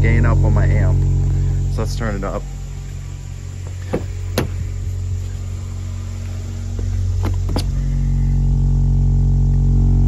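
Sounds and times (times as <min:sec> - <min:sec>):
subwoofer deep test tone drone: 0:00.0 - 0:10.0
car door handle and latch clicks: 0:06.8 - 0:07.7.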